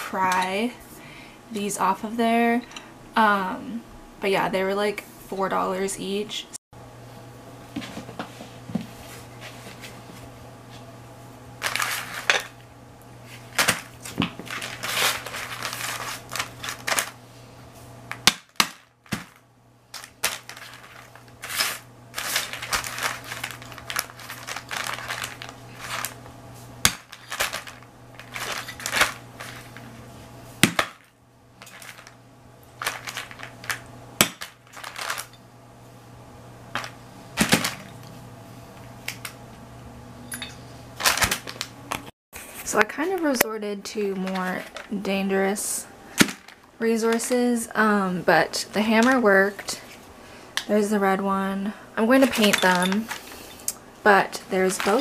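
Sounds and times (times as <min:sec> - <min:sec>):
broken pieces scraping and crunching: 0:13.5 - 0:17.2, 0:20.0 - 0:26.2, 0:26.9 - 0:29.9, 0:32.8 - 0:33.8, 0:34.4 - 0:35.4.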